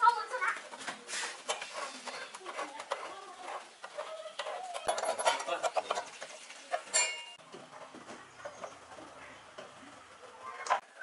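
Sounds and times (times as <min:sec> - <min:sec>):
wrench clinking and scraping metal: 0:01.4 - 0:07.4
sharp ringing metal clink: 0:06.9 - 0:07.4.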